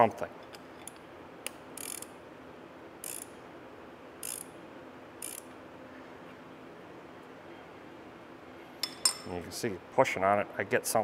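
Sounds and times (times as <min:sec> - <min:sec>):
ratchet wrench clicking: 0:01.8 - 0:02.1, 0:03.0 - 0:03.3, 0:04.2 - 0:04.5, 0:05.2 - 0:05.5.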